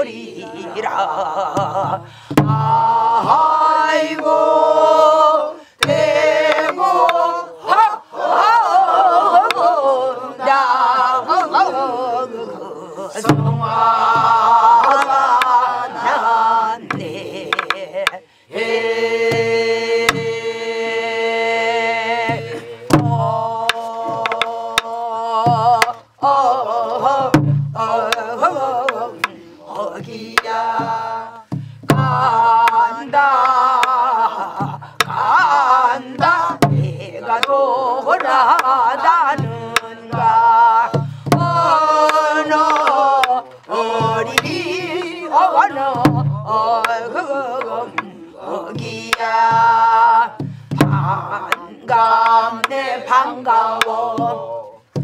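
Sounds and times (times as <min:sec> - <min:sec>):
other voices singing: 0:00.0 - 0:55.0
person folk singing wavering voice: 0:00.0 - 0:55.0
low drum thuds: 0:01.5 - 0:03.5, 0:13.2 - 0:15.0, 0:22.2 - 0:26.2, 0:27.0 - 0:29.0, 0:29.8 - 0:33.1, 0:36.2 - 0:37.5, 0:39.3 - 0:45.2, 0:45.9 - 0:46.9, 0:48.6 - 0:52.4.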